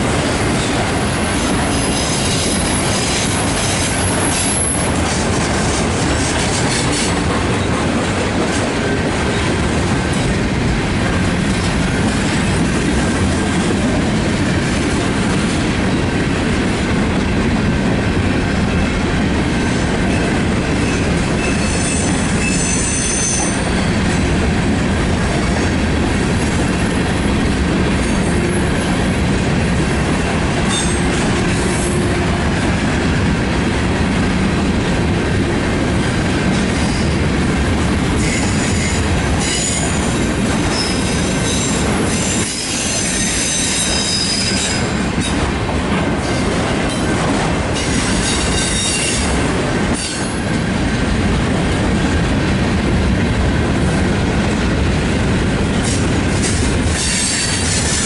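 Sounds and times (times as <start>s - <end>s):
train wheels rumbling on rails: 0.0s - 58.0s
high-pitched wheel squeal: 21.4s - 23.9s.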